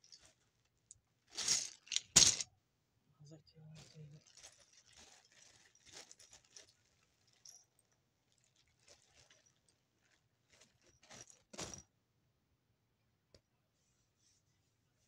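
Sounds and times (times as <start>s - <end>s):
rustling: 3.8s - 7.7s.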